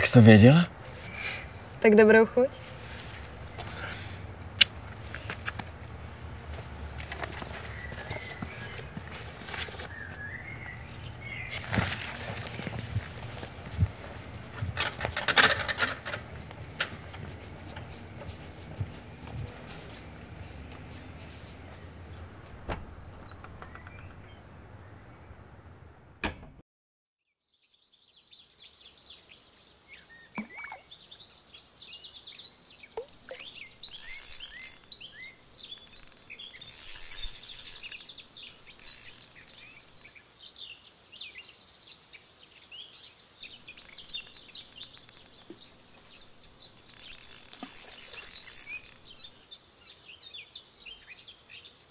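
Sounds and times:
small birds chirping: 0.0s - 15.1s, 16.0s - 25.5s, 27.7s - 51.9s
insects chirring: 33.0s - 40.2s, 43.5s - 49.4s.

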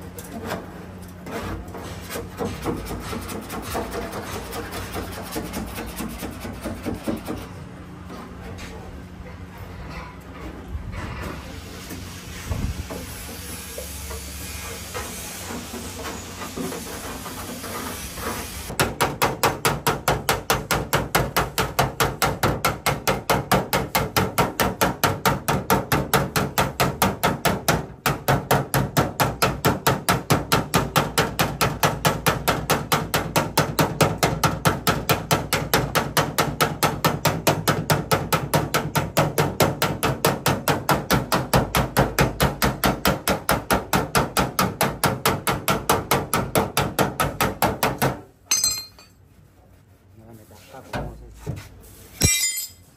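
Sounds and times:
hammer beating sheet metal: 18.7s - 49.1s.

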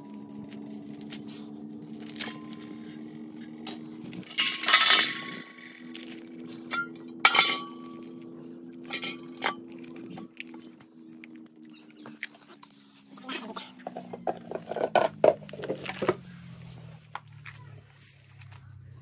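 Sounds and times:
steady low hum: 0.0s - 19.0s
metal bowls clinking: 3.5s - 10.4s.

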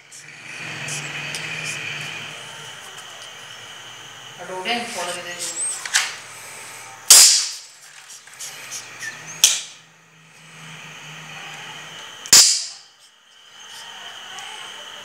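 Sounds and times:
sharp cracks: 7.1s - 8.0s, 12.2s - 12.8s.

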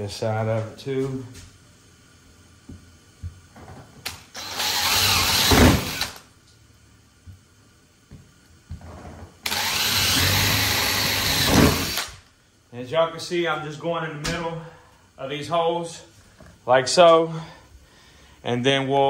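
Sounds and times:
cordless drill boring sheet metal: 4.3s - 6.2s, 9.4s - 12.2s.

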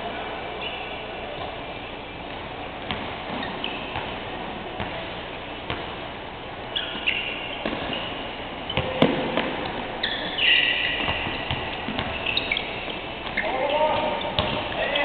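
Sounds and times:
basketball shoes squeaking: 0.6s - 15.0s
basketball bouncing: 2.3s - 4.2s, 5.7s - 6.0s, 7.6s - 15.0s.

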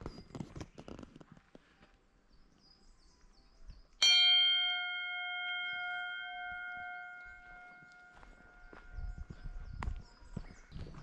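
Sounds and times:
metal bell ringing: 4.0s - 9.3s.

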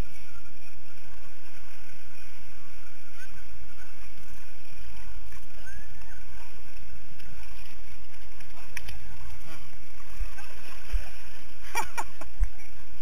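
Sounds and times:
muddy water splashing: 0.0s - 13.0s.

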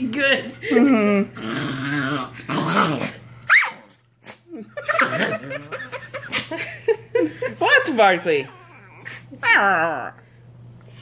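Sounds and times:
small dog growling: 1.1s - 3.2s
dog squealing: 3.5s - 3.9s, 8.4s - 9.9s.

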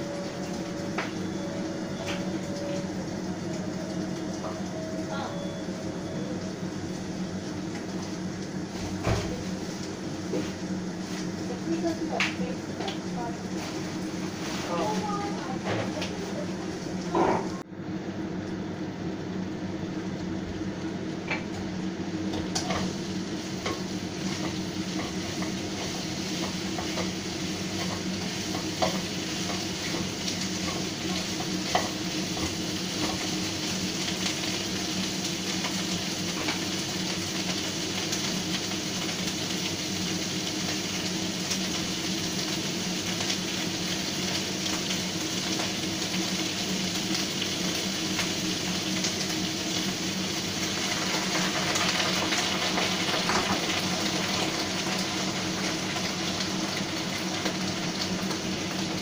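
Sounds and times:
food sizzling in a wok: 0.0s - 59.0s
spatula stirring food: 22.4s - 37.6s.

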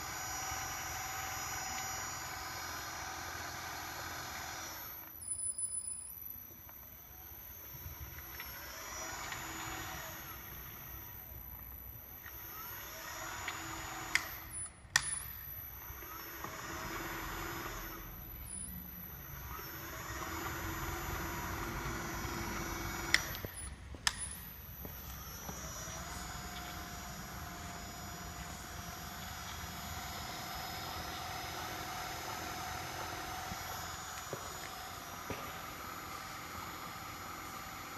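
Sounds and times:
electric motor whining: 0.0s - 37.9s
sharp clicks: 12.2s - 15.4s, 22.2s - 27.2s.

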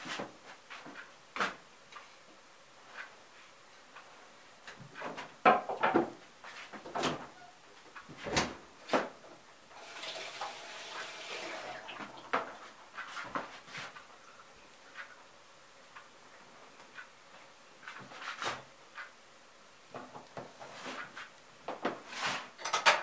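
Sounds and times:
rustling noise: 0.0s - 5.4s, 6.2s - 9.2s, 11.5s - 15.3s, 15.9s - 19.2s, 19.9s - 22.6s.

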